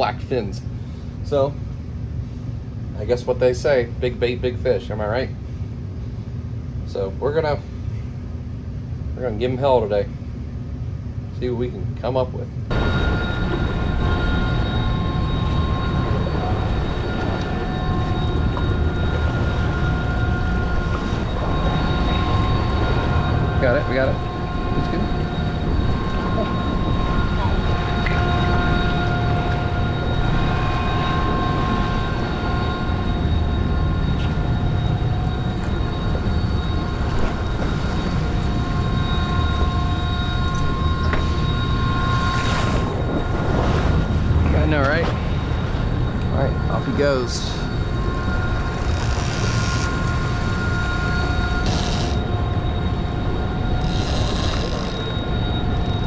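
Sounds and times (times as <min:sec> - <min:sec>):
machinery whining tones: 0:12.6 - 0:56.0
propwash rushing: 0:12.7 - 0:56.0.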